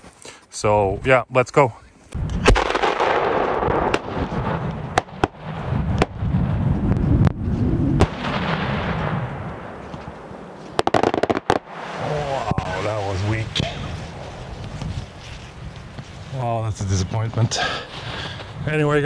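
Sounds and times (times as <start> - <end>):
firework bangs: 2.2 - 15.1.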